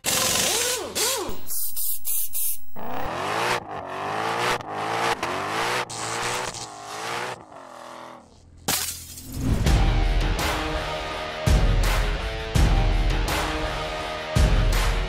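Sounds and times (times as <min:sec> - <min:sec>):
hissing noise: 0:01.3 - 0:03.1
car engine accelerating through gears: 0:02.6 - 0:08.3.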